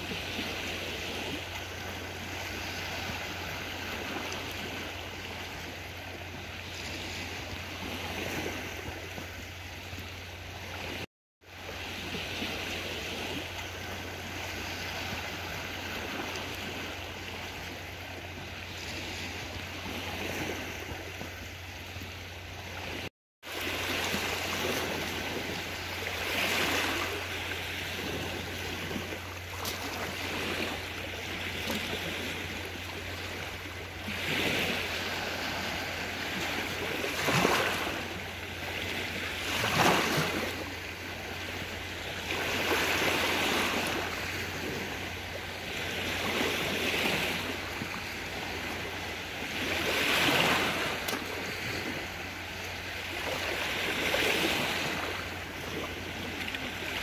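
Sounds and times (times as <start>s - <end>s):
waves washing against rocks: 22.5s - 57.0s.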